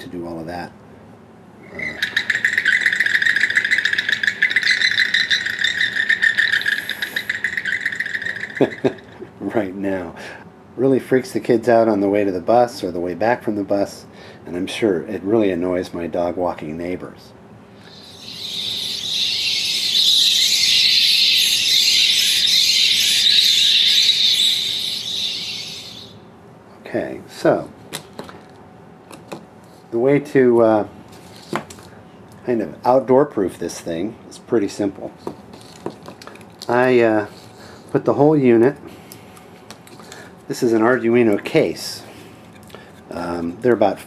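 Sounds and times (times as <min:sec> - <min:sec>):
rattling buzz sound effect: 0:01.7 - 0:09.3, 0:17.8 - 0:26.2.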